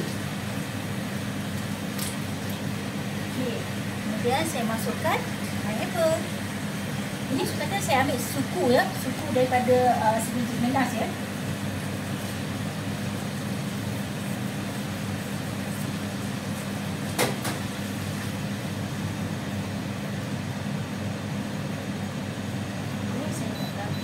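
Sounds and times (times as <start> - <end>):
cooker fan running: 0.0 - 24.0
sauce simmering in a pan: 10.5 - 22.6.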